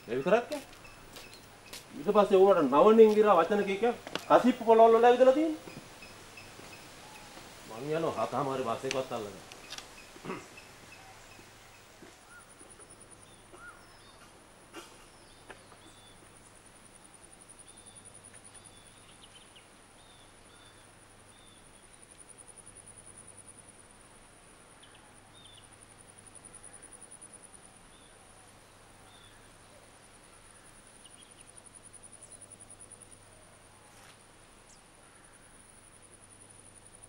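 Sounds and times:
insect trilling: 0.0 - 16.2
bird chirps: 4.1 - 7.9.

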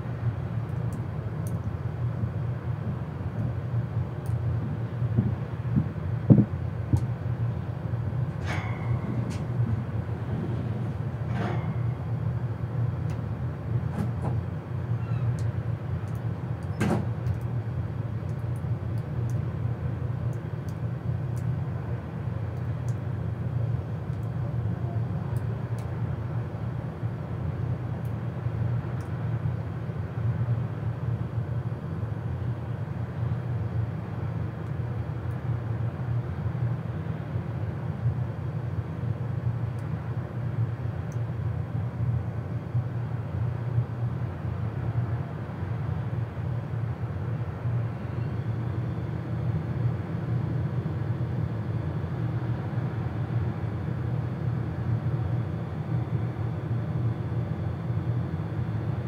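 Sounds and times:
low engine hum: 0.0 - 59.0.

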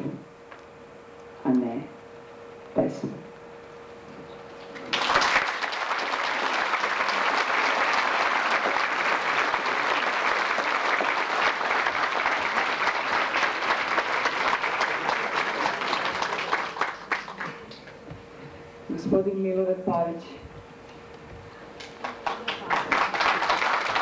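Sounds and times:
audience applauding: 4.7 - 17.9, 21.8 - 24.0.

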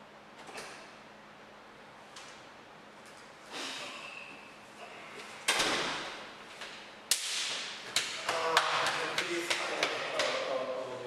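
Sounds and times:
hand-clasp slap: 6.6 - 10.5.

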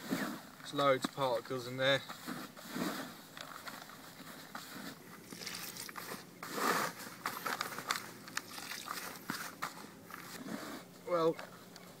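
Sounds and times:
hand mixing bait in bucket: 5.2 - 9.6
water pouring: 5.3 - 6.0, 8.4 - 9.0.

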